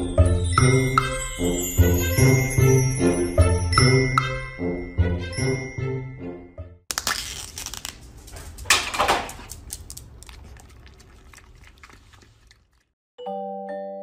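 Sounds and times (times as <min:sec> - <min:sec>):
foil and plastic crinkling: 0:06.9 - 0:10.3
dog licking: 0:09.4 - 0:12.9.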